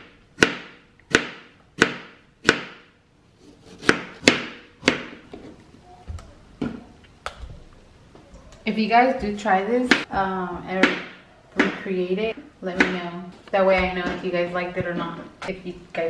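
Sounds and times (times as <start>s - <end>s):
knife chopping on cutting board: 3.5s - 5.2s.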